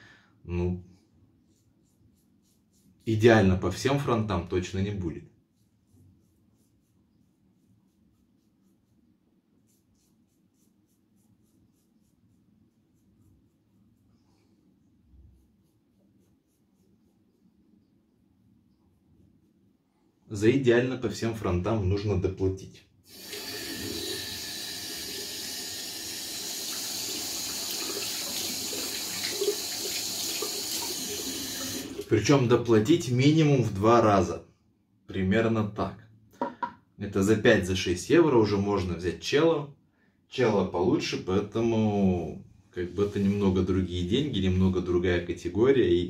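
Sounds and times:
tap water running into sink: 23.1s - 32.1s
light knock: 36.4s - 36.8s.

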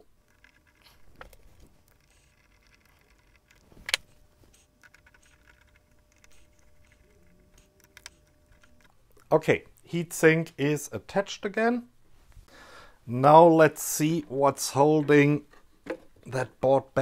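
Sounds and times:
handling and small clicks: 0.2s - 9.3s.

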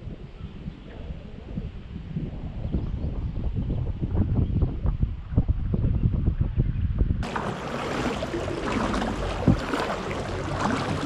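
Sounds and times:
wind rumble on microphone: 0.0s - 11.0s
water splashing and dripping: 7.2s - 11.0s.

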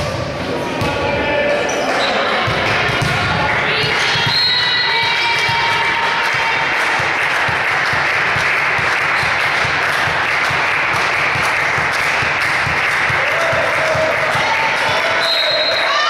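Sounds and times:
spectators applauding: 4.9s - 16.0s.

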